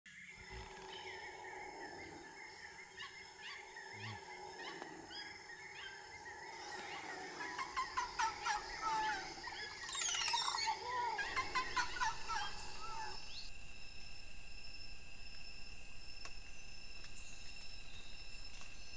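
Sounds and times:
birds calling: 0:00.1 - 0:13.5
insects droning: 0:00.1 - 0:18.9.

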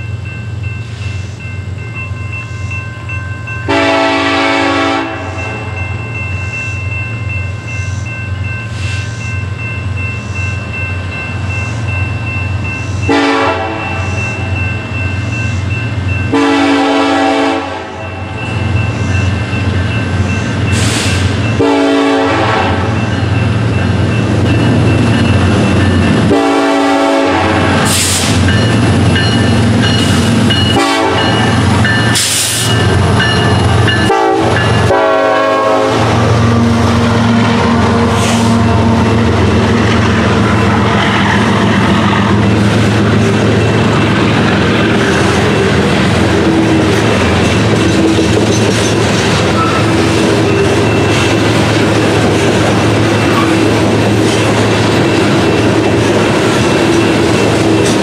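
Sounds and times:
train cars rolling on rails: 0:00.0 - 0:58.0
locomotive rumble: 0:03.0 - 0:58.0
locomotive air horn blasts: 0:03.7 - 0:05.7, 0:13.1 - 0:14.2, 0:16.3 - 0:18.0, 0:20.8 - 0:23.0, 0:26.3 - 0:28.4, 0:30.7 - 0:31.4, 0:34.0 - 0:39.4.

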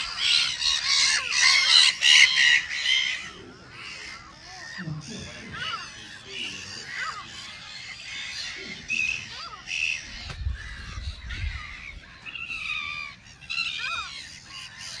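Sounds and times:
gulls calling: 0:00.0 - 0:15.0.

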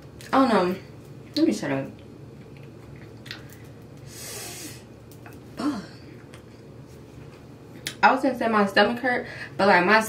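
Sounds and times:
person breathing out noisily: 0:04.1 - 0:04.9.

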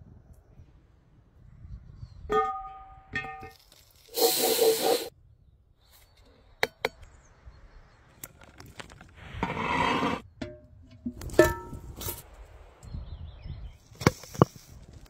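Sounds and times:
rasping scraping in pan: 0:09.4 - 0:10.2.

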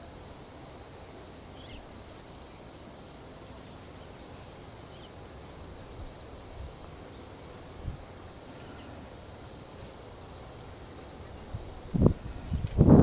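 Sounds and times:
outdoor marsh background noise: 0:00.0 - 0:13.0
faint high chirps: 0:01.2 - 0:02.8.

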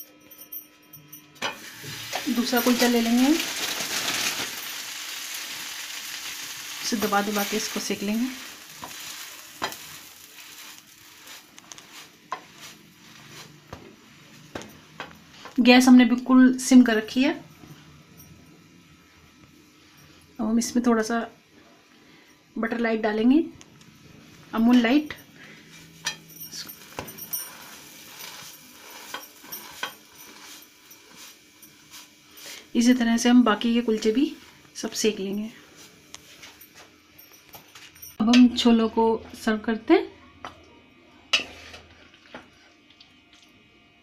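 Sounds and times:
faint sizzling of dough on pan: 0:01.5 - 0:16.0, 0:24.0 - 0:36.6.

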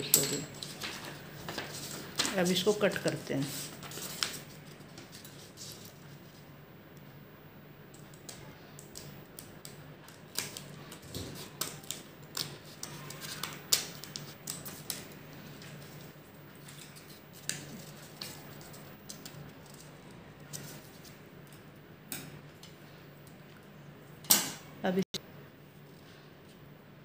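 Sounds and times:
scissors snipping paper: 0:08.0 - 0:15.8, 0:16.6 - 0:21.2.

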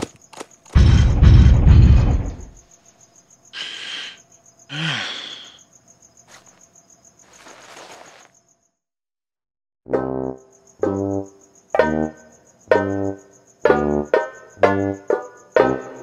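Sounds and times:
crickets chirping: 0:00.0 - 0:08.9, 0:10.0 - 0:16.0
heavy low rumble: 0:00.8 - 0:02.5.

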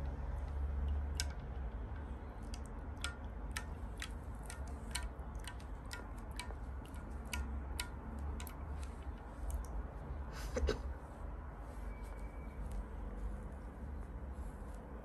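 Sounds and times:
low steady rumble: 0:00.0 - 0:15.0
water plinks and clicks: 0:00.1 - 0:09.8.

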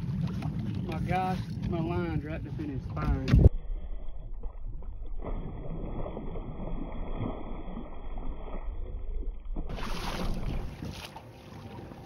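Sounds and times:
wind buffeting microphone: 0:00.0 - 0:06.9.

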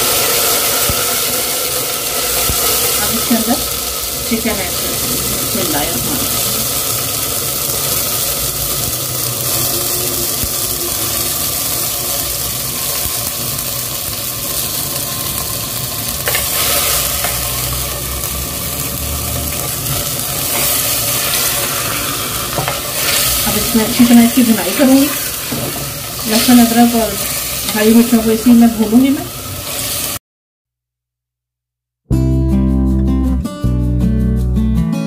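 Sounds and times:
chicken sizzling in hot oil: 0:00.0 - 0:30.2.

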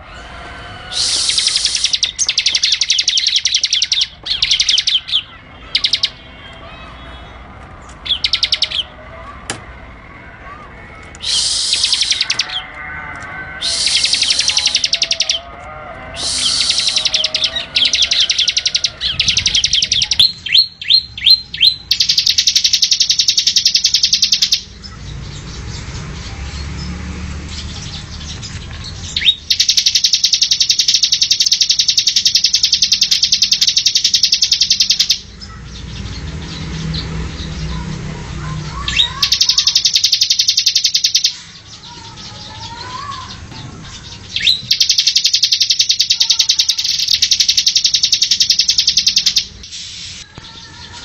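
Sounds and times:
bird trilling: 0:00.0 - 0:07.3, 0:08.0 - 0:09.0, 0:11.2 - 0:25.1, 0:27.8 - 0:37.8, 0:38.4 - 0:51.0
falling whistles: 0:00.7 - 0:04.0, 0:11.2 - 0:12.4, 0:16.2 - 0:17.4.

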